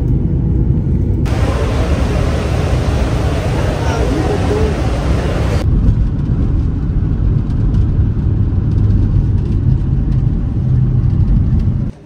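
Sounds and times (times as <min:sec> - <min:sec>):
vehicle rumble from inside cabin: 0:00.0 - 0:12.0
faint steady hum: 0:01.3 - 0:05.6.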